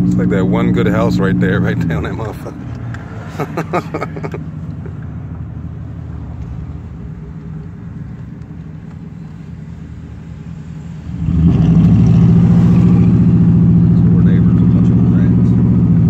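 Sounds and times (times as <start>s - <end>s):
loud engine drone: 0.0s - 5.0s, 10.0s - 16.0s
pickup truck engine drone: 0.0s - 16.0s
road noise inside cab: 0.0s - 16.0s.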